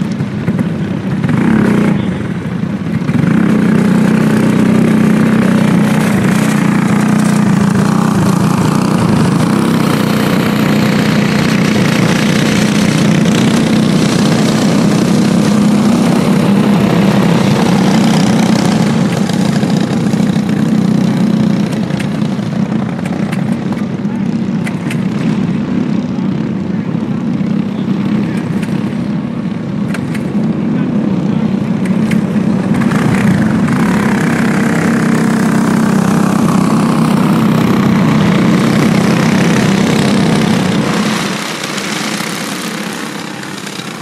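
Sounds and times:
kart engines buzzing: 0:00.0 - 0:44.0.

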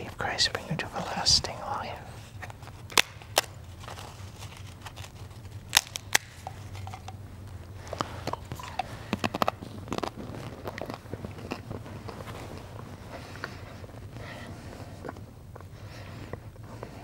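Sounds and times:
low steady hum: 0:00.0 - 0:17.0
bread wafer snapping: 0:02.4 - 0:06.9.

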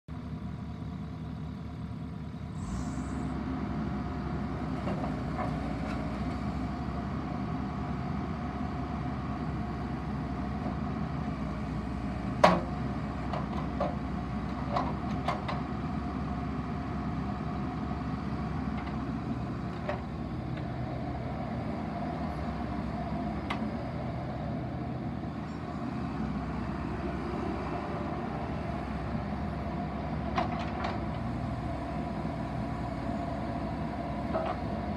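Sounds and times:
excavator diesel engine running: 0:00.1 - 0:34.9
brief hydraulic hiss: 0:02.6 - 0:03.3.

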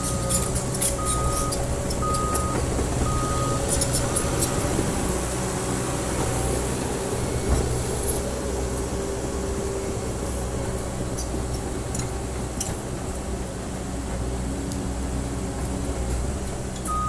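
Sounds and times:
steel tracks clinking: 0:00.0 - 0:09.0
diesel engine running: 0:00.0 - 0:17.0.

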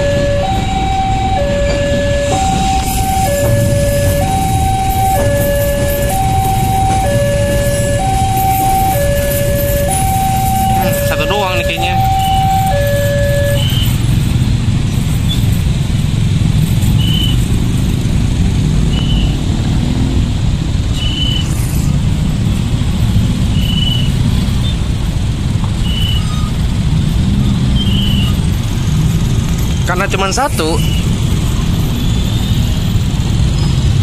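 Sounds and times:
two-tone crossing alarm: 0:00.0 - 0:14.2, 0:23.5 - 0:24.8, 0:25.8 - 0:26.7, 0:27.4 - 0:34.0
traffic engines rumbling: 0:00.0 - 0:34.0
short high beeps: 0:09.8 - 0:14.0.

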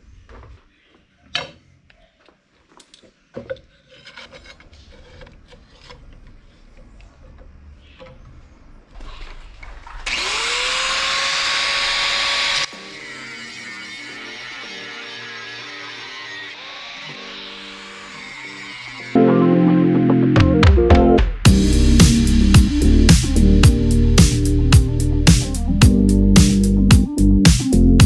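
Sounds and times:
angle grinder whining: 0:09.9 - 0:19.5
guitar music: 0:19.1 - 0:28.0.

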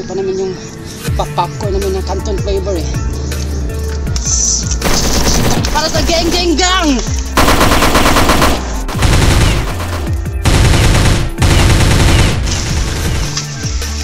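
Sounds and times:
background music with low bass: 0:00.0 - 0:14.0
automatic gunfire bursts: 0:04.8 - 0:06.3, 0:07.4 - 0:13.3.

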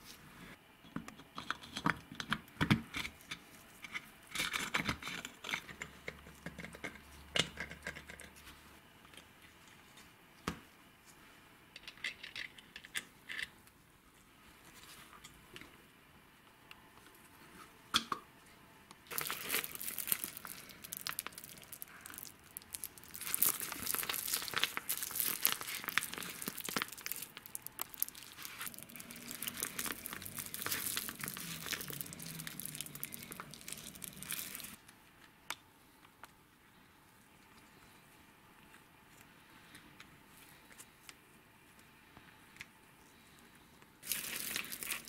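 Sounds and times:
plastic sachet crinkling: 0:19.1 - 0:34.8, 0:44.0 - 0:45.0.

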